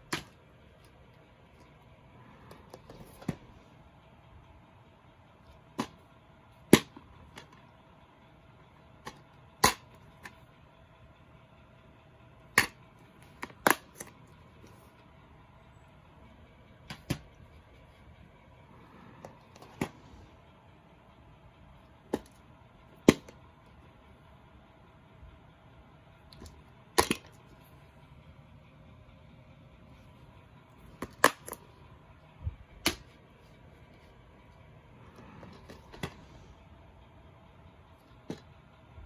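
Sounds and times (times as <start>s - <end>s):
plastic cases clacking: 35.1s - 36.4s.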